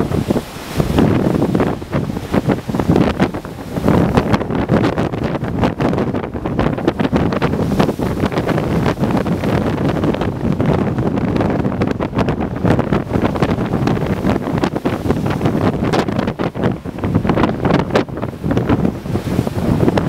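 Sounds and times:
gale wind buffeting microphone: 0.0s - 20.0s.

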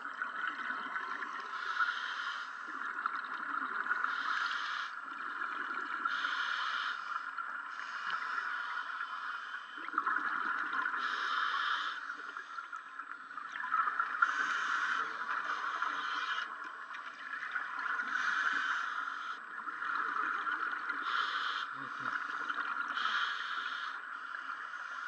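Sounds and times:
scuba breathing through regulator: 11.0s - 12.6s.

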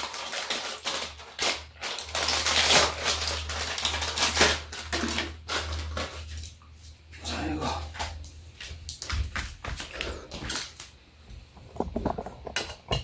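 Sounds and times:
plastic wrapper crinkling: 0.0s - 6.6s.

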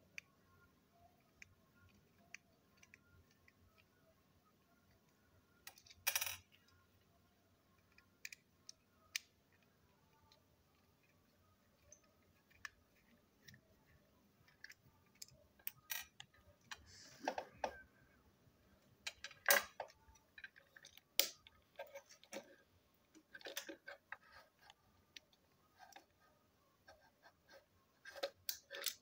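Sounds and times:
plastic toy parts clicking: 5.6s - 6.7s, 14.4s - 16.7s, 23.2s - 24.3s, 28.0s - 29.0s.

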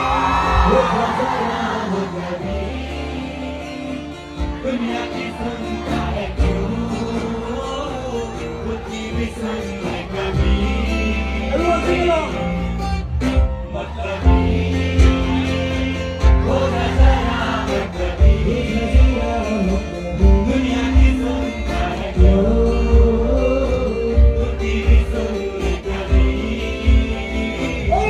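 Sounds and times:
male singer amplified vocal: 0.0s - 12.7s, 13.6s - 28.0s
live band music: 0.0s - 28.0s
thumping drum beat: 16.2s - 19.6s, 20.2s - 23.4s, 24.2s - 28.0s.

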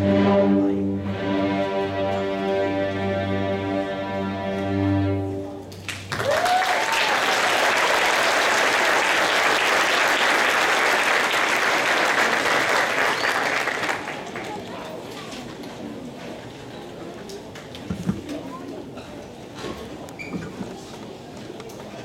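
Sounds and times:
string orchestra chord: 0.0s - 5.7s
audience applause: 5.9s - 14.7s.

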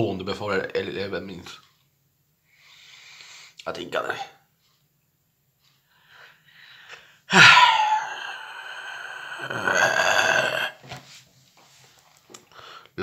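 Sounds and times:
man's loud drawn-out vocal noise: 7.3s - 10.8s.

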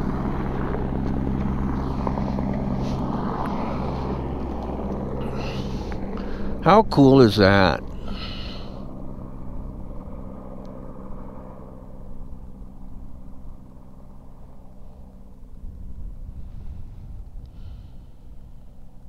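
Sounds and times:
helicopter drone: 0.0s - 19.0s
low rumble: 7.4s - 19.0s.

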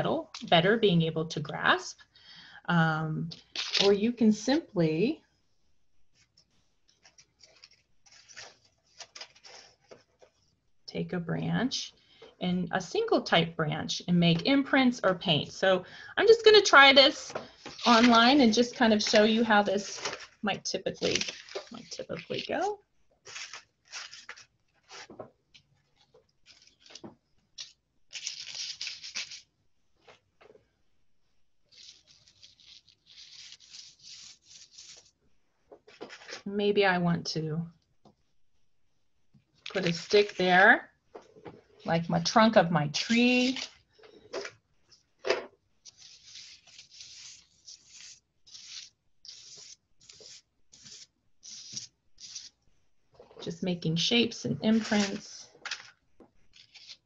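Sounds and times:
twigs brushing paper bag: 17.5s - 25.1s, 31.7s - 35.2s, 45.8s - 52.6s, 54.7s - 55.8s
sprigs dabbing on paper: 45.8s - 52.7s, 54.6s - 55.8s.

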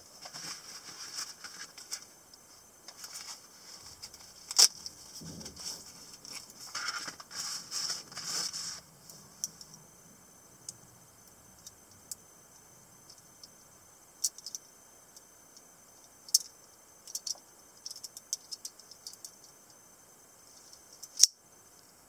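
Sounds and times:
fabric rustling and scraping: 0.2s - 2.0s, 5.0s - 8.9s.

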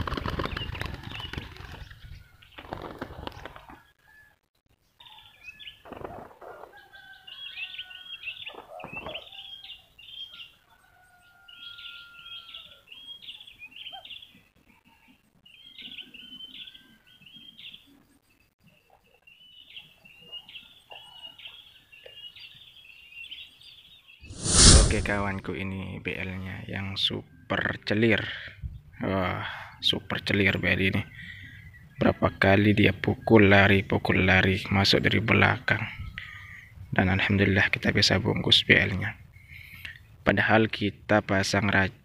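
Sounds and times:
wing flapping: 0.0s - 3.8s, 24.3s - 25.3s.

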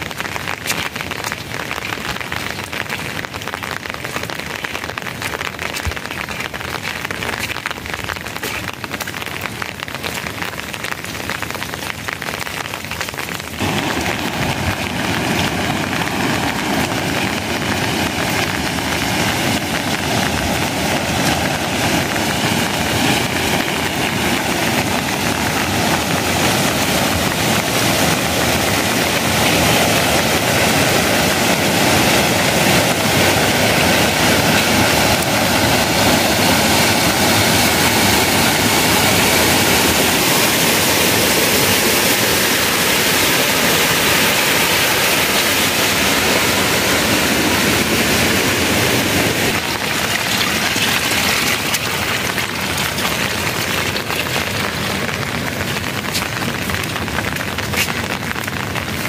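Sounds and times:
rain pattering: 0.0s - 59.0s
rushing noise: 13.5s - 56.0s.

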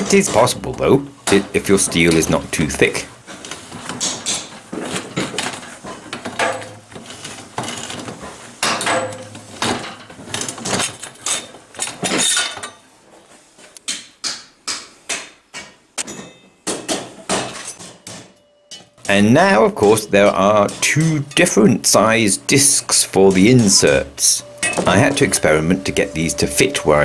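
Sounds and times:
metallic clanks and knocks: 0.0s - 12.8s, 15.1s - 22.0s, 23.2s - 27.0s
steel ringing: 22.6s - 27.0s.

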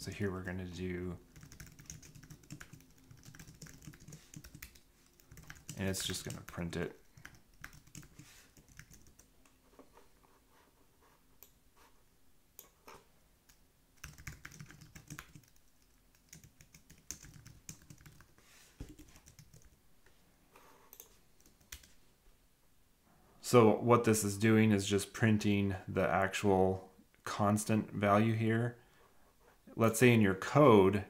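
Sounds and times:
faint keyboard typing: 1.2s - 11.6s, 12.6s - 22.0s.

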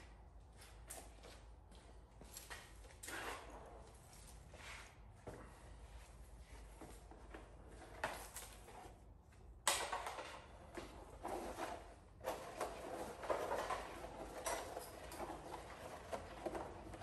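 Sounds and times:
cord reel plastic rattling: 9.7s - 17.0s.

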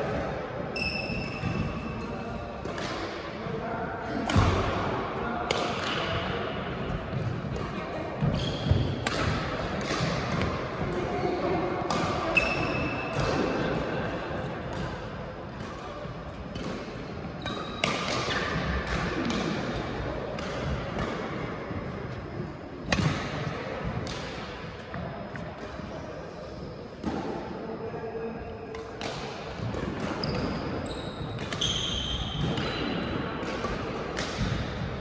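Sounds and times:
shoes squeaking on court floor: 0.7s - 2.2s, 8.2s - 9.0s, 30.1s - 32.8s
rackets striking shuttlecock: 2.6s - 3.2s, 5.4s - 6.2s, 7.5s - 11.1s, 11.8s - 13.6s, 16.5s - 21.3s, 22.9s - 24.9s, 28.7s - 31.8s, 32.4s - 34.9s.

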